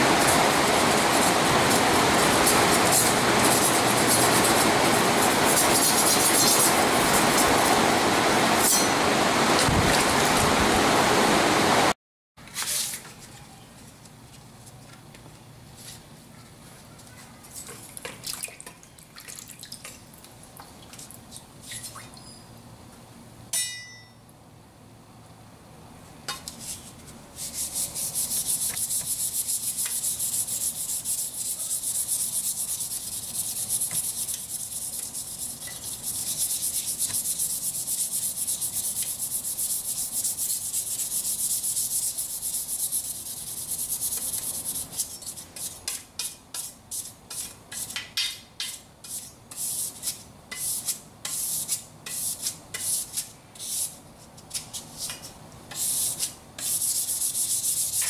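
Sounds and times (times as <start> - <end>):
sandpaper scrubbing knife blade: 0.1 - 7.6, 26.4 - 58.0.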